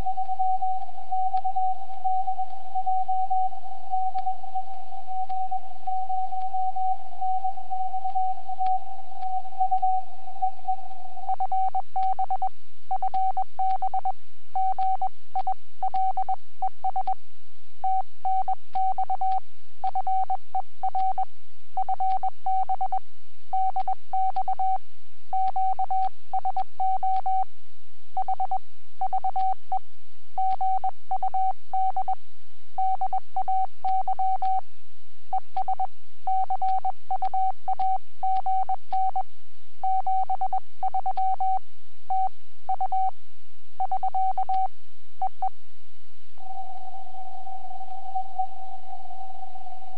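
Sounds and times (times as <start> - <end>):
low steady hum: 0.0 - 49.9
morse code tone: 23.6 - 24.8, 28.2 - 29.6, 30.4 - 32.2, 35.3 - 39.2, 39.8 - 43.1, 43.8 - 45.5, 46.4 - 49.9.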